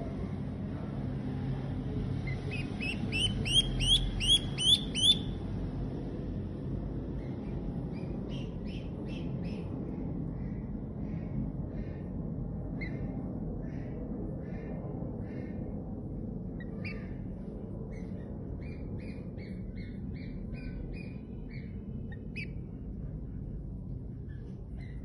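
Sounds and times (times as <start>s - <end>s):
steady low hum: 0.0s - 25.0s
duckling peeping: 2.2s - 5.4s, 22.1s - 22.6s.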